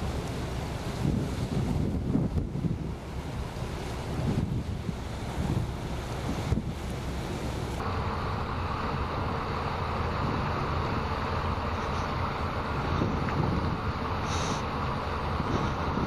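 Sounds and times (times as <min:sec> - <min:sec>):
wind buffeting microphone: 0:00.0 - 0:07.8, 0:11.8 - 0:16.0.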